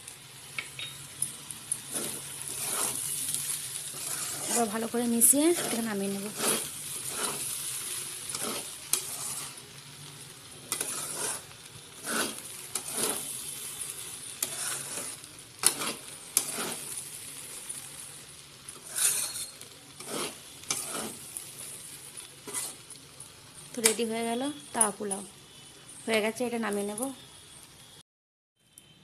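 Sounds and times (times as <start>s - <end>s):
pan sizzling: 0.0s - 25.3s
metal spatula scraping pan: 1.8s - 9.6s, 10.6s - 17.1s, 18.7s - 21.8s, 22.4s - 22.8s.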